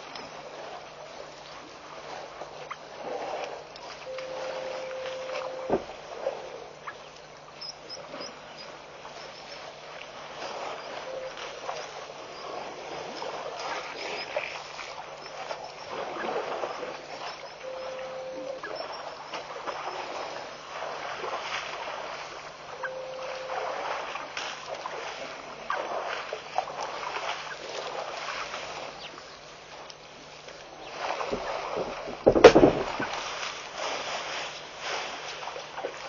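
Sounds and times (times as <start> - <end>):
water splashing and sloshing: 0.0 - 36.0
brief steady notes: 4.1 - 5.9.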